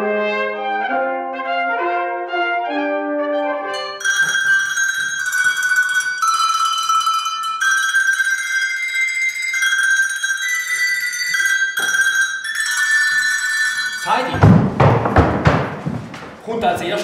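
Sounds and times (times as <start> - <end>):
hand bells ringing a slow melody: 3.8 - 14.4.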